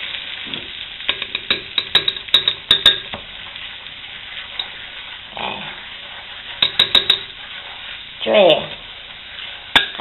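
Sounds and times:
roux sizzling in a frying pan: 0.0s - 10.0s
spoon tapping against pan: 1.0s - 3.3s, 6.6s - 7.4s, 9.7s - 10.0s.

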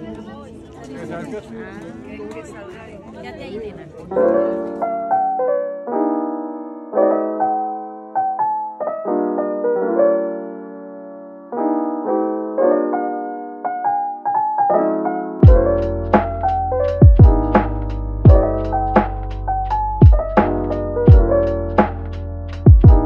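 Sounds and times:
piano music: 4.1s - 23.0s
deep kick drum beat: 15.4s - 15.9s, 17.0s - 19.3s, 20.0s - 21.4s, 22.6s - 23.0s.

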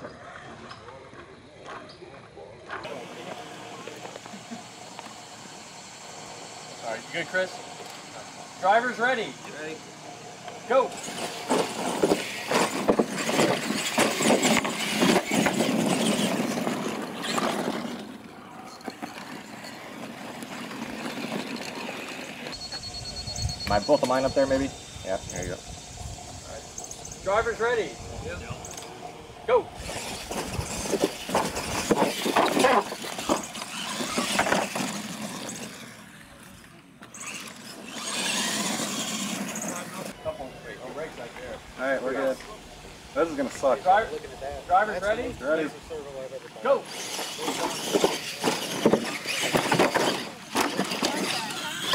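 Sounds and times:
toy trucks driving on dirt: 0.0s - 51.9s
toy trucks knocking on ramps: 46.9s - 51.9s.

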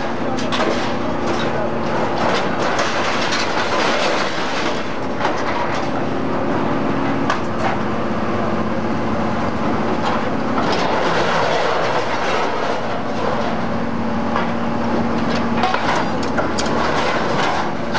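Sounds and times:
scrap metal clanking and rattling: 0.0s - 6.0s, 10.0s - 13.7s, 15.2s - 17.9s
heavy machinery droning: 0.0s - 17.9s.

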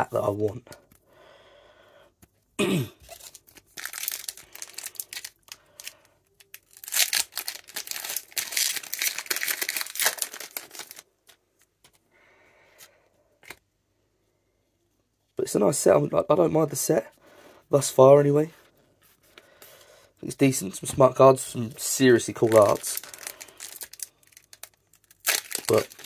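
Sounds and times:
foil wrapper crinkling and tearing: 3.0s - 11.4s, 21.8s - 26.0s.

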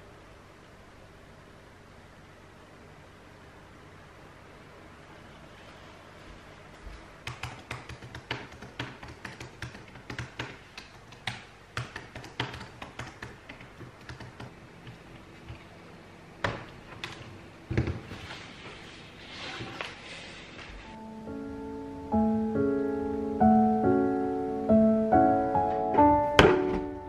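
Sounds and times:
typing on laptop keyboard: 7.2s - 15.0s.

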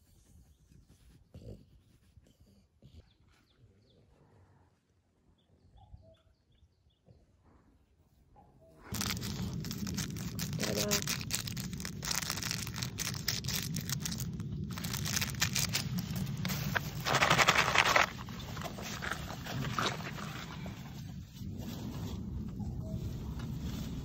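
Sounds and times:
paper packet crinkling: 8.9s - 20.8s.

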